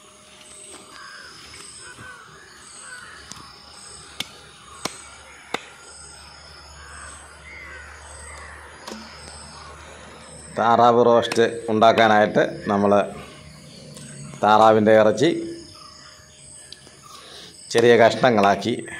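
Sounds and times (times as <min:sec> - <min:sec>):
crows cawing: 0:00.7 - 0:14.4.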